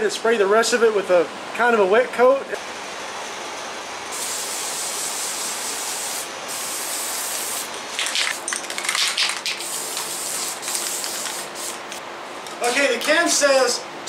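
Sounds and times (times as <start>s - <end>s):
aerosol can spraying: 4.1s - 11.9s.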